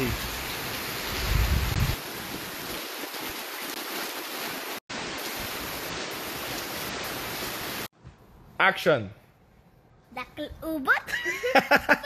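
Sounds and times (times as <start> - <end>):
rain falling: 0.0 - 7.9.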